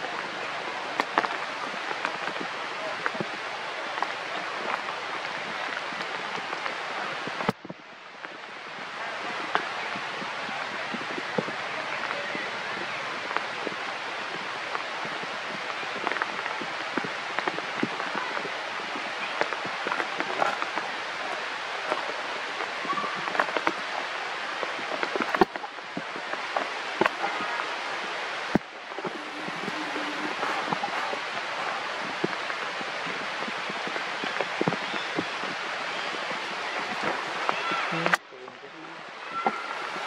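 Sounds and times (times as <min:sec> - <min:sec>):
rain pattering on leaves: 0:00.0 - 0:40.0.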